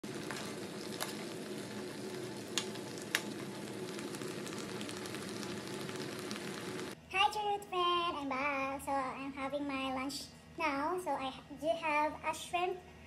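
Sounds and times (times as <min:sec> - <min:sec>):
sauce bubbling and sizzling: 0:00.0 - 0:07.0.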